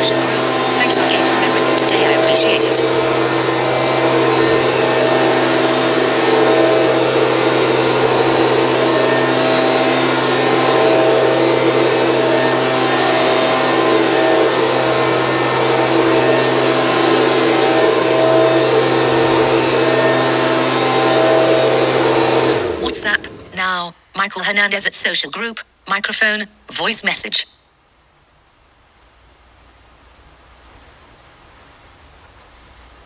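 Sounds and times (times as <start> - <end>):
leaf blower engine running: 0.0 - 23.8.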